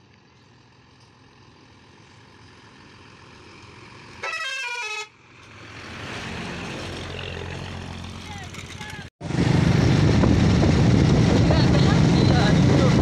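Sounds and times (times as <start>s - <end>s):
bus engine: 0.0s - 13.0s
bus horn stepping notes: 4.2s - 5.2s.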